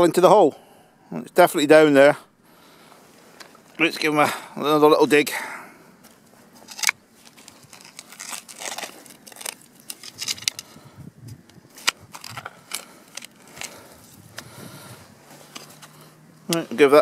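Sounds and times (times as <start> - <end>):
spade digging stony soil: 6.6 - 17.0.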